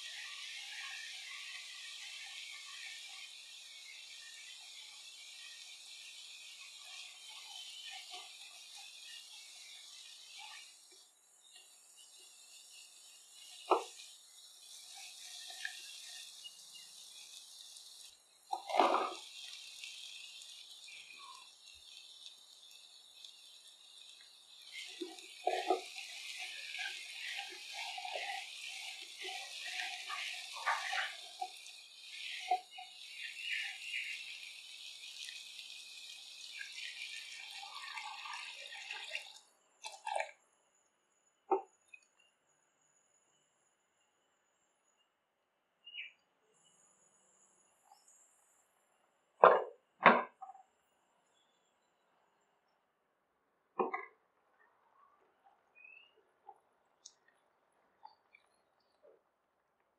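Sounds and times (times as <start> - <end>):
food sizzling in a pan: 0.0 - 40.2.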